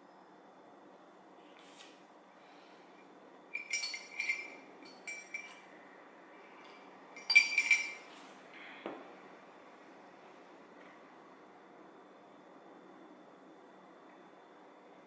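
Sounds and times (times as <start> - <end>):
ceramic mug clinking: 3.6 - 5.6, 7.2 - 8.1.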